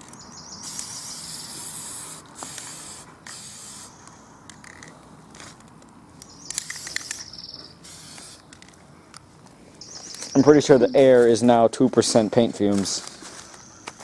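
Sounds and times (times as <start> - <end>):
spray paint can hissing: 0.6 - 4.1, 6.4 - 8.6.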